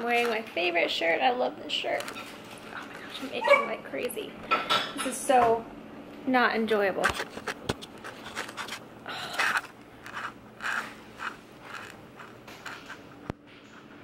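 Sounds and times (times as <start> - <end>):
fingernails scratching skin: 7.2 - 13.3.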